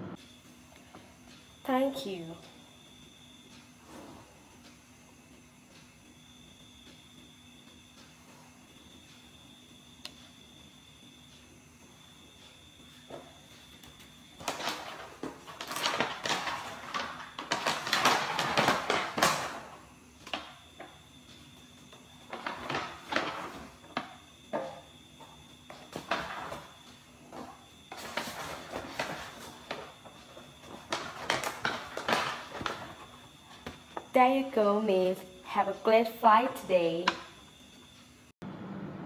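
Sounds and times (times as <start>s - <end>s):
items rustling and clicking: 12.4s - 34.2s.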